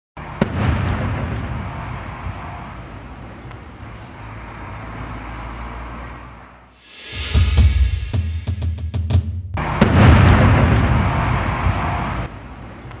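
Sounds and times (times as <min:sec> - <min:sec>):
firework bang: 0:00.4 - 0:02.4, 0:09.6 - 0:11.8.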